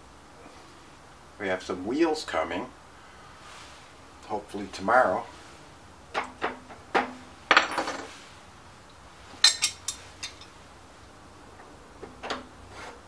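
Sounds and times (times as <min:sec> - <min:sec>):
metal tools clinking on metal: 0:07.5 - 0:08.1, 0:09.4 - 0:10.6.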